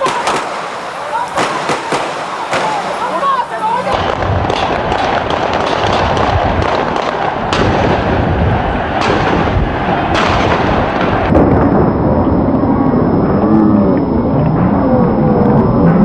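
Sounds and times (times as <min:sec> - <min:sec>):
din of street unrest: 0:00.0 - 0:11.8
sharp bangs: 0:00.0 - 0:11.8.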